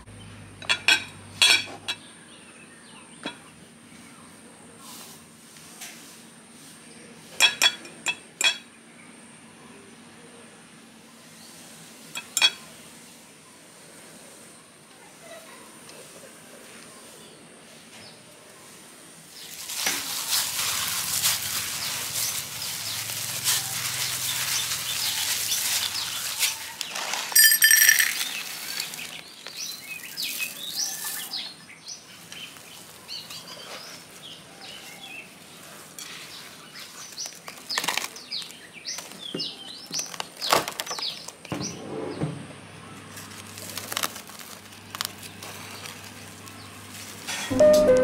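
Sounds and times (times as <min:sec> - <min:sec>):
small birds chirping: 0:21.1 - 0:27.2, 0:28.2 - 0:41.8.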